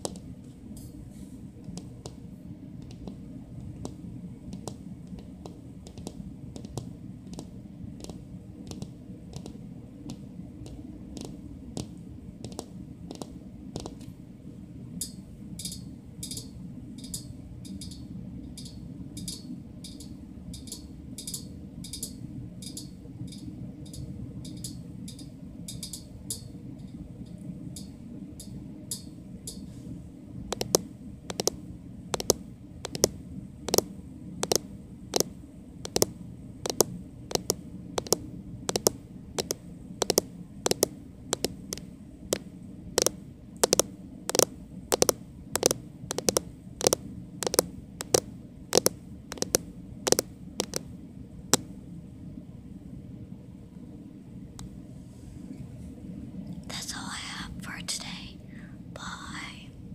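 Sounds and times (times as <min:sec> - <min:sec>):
steady low hum: 0:00.0 - 0:59.9
fingernails clicking: 0:02.8 - 0:03.2, 0:04.6 - 0:14.0, 0:30.5 - 0:31.6, 0:32.2 - 0:33.1, 0:34.4 - 0:34.6, 0:35.9 - 0:36.1, 0:36.7 - 0:41.9, 0:43.0 - 0:50.8.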